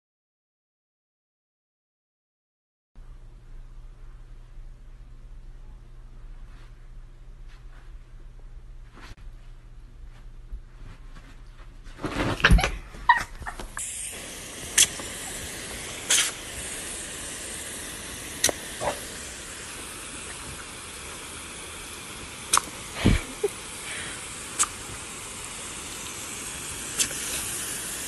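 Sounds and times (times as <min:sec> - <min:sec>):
hose nozzle spray hissing: 0:13.1 - 0:28.0.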